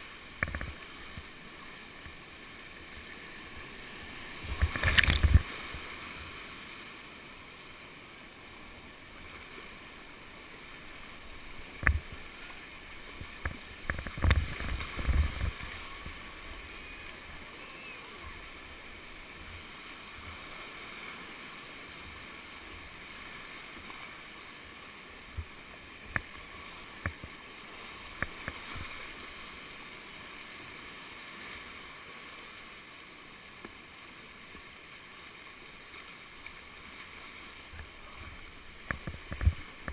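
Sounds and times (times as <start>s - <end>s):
whitewater rapids rushing: 0.0s - 39.9s
sharp knocks and splashes: 4.4s - 5.8s, 11.7s - 12.2s, 13.2s - 16.1s.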